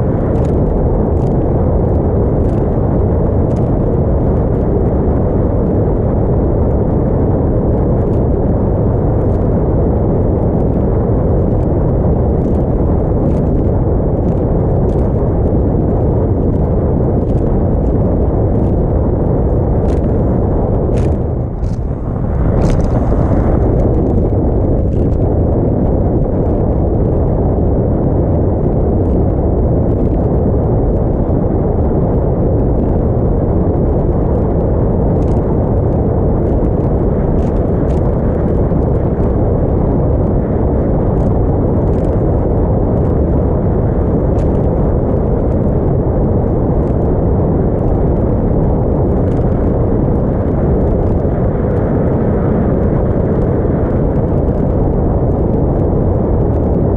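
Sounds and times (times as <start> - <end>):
wind buffeting microphone: 0.0 - 56.9
boat engine: 20.1 - 24.6.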